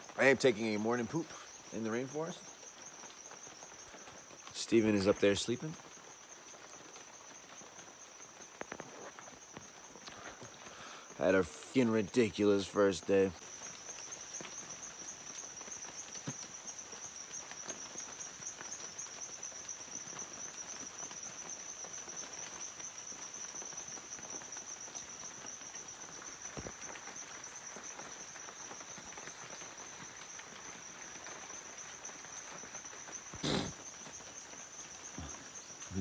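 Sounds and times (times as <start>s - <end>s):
insects shrilling: 0.0s - 36.0s.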